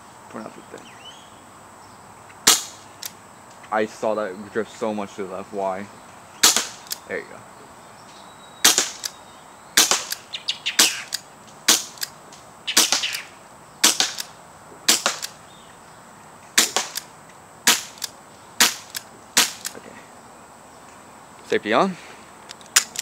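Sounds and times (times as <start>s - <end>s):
air pistol shots popping: 2.4s - 3.2s, 6.4s - 7.0s, 8.6s - 9.2s, 9.8s - 12.1s, 12.7s - 14.3s, 14.9s - 15.4s, 16.6s - 19.8s, 22.7s - 23.0s.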